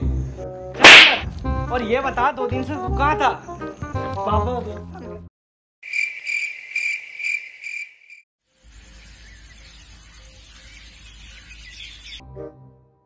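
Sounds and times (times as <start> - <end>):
crickets chirping: 5.8 - 10.2.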